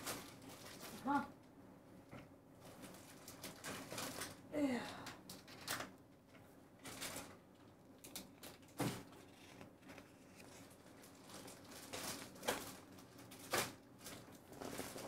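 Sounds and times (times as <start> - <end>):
paper rustling: 2.6 - 4.4, 6.8 - 15.0.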